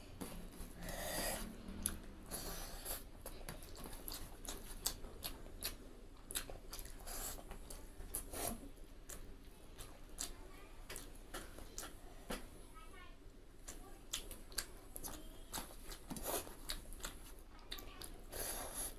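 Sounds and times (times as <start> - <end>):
chewing and mouth smacks: 1.7 - 12.0, 13.6 - 18.2.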